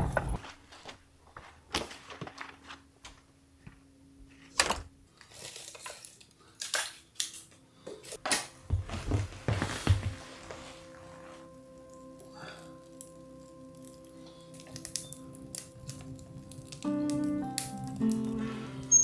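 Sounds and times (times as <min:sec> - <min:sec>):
footsteps on wooden floor: 0:08.6 - 0:10.8.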